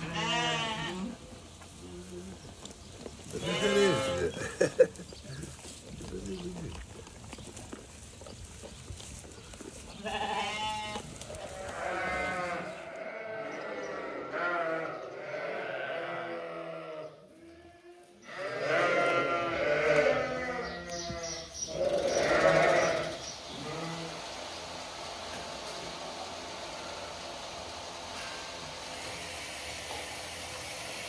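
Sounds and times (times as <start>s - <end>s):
sheep bleating: 0.0s - 1.2s, 3.3s - 4.5s, 10.0s - 24.2s.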